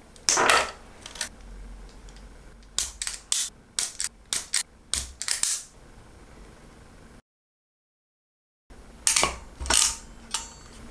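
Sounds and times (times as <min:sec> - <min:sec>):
sharp clicks and snaps: 0:01.2 - 0:05.7.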